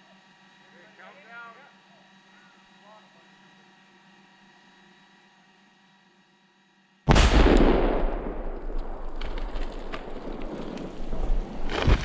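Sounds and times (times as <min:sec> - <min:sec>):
explosion blast: 0:07.1 - 0:12.0
low rumble: 0:07.1 - 0:12.0
sharp cracks: 0:07.1 - 0:12.0.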